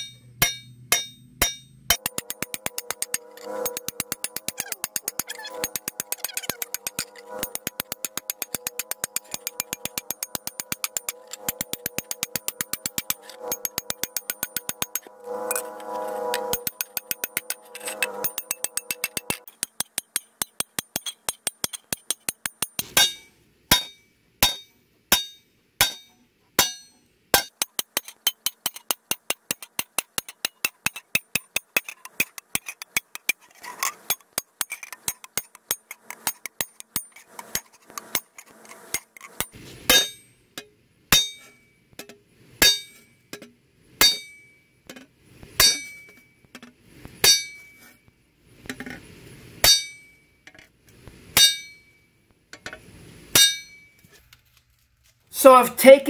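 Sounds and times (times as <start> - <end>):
hammer tapping on metal: 0.0 - 15.1, 16.4 - 33.4, 39.4 - 46.3, 49.6 - 50.2, 51.4 - 51.9, 53.4 - 54.0
metal blade ringing: 0.0 - 15.7, 16.4 - 27.6, 39.4 - 40.4, 41.1 - 43.2, 44.0 - 44.7, 45.6 - 46.4, 47.2 - 47.8, 49.6 - 50.3, 51.4 - 52.1, 53.4 - 54.0
heavy hammer blows on metal: 0.0 - 31.8, 42.6 - 43.1, 45.6 - 46.3.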